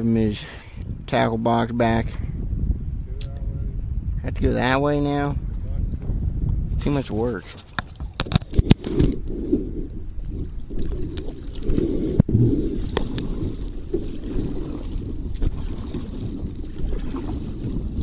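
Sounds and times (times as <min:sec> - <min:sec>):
water sloshing against kayak: 0:07.4 - 0:18.0.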